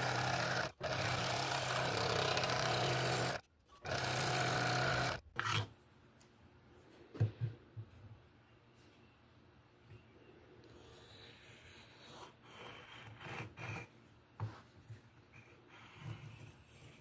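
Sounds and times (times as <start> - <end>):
scroll saw buzzing: 0.0 - 5.6.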